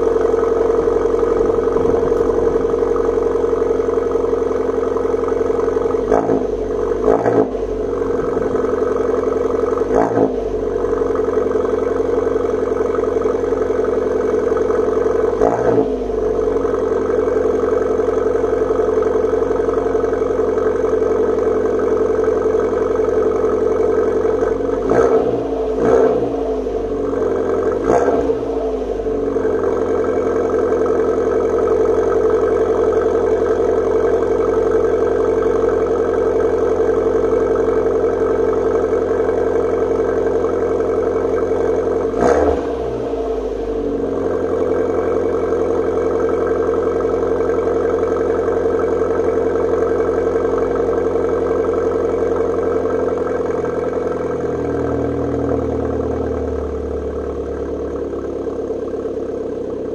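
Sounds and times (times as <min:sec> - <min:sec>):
car engine idling with throttle blips: 0:00.0 - 0:59.9.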